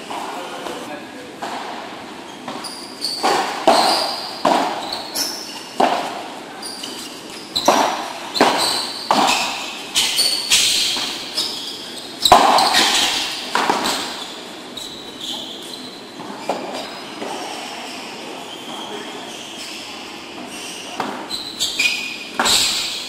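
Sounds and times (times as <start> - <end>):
ball bouncing off court and walls: 1.4 - 6.3, 7.6 - 11.6, 12.2 - 14.4
padel rackets striking ball: 3.2 - 6.3, 7.6 - 11.4, 12.2 - 14.2.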